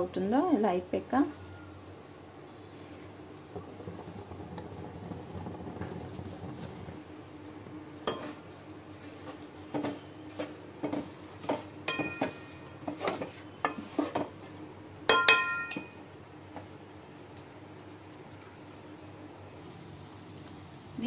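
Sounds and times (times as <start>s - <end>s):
wooden spatula scraping a pan: 8.1s - 11.7s, 12.8s - 14.4s
pan ringing: 15.1s - 16.0s.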